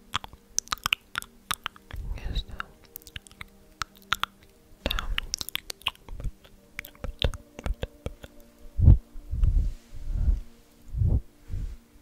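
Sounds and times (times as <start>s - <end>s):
crisp clicks and snaps: 0.0s - 8.7s
faint steady hum: 0.0s - 12.0s
soft low thumps: 8.7s - 11.8s.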